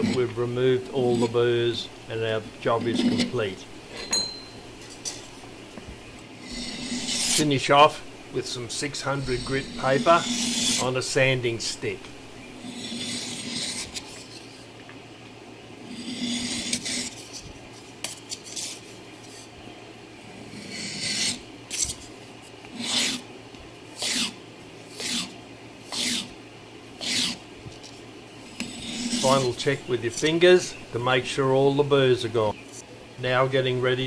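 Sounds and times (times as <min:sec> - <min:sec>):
sandpaper rubbing on steel pin: 0:06.4 - 0:07.6, 0:09.0 - 0:11.0, 0:12.6 - 0:14.6, 0:15.9 - 0:17.5, 0:24.0 - 0:25.3, 0:25.9 - 0:26.3, 0:27.0 - 0:27.4, 0:28.6 - 0:29.8.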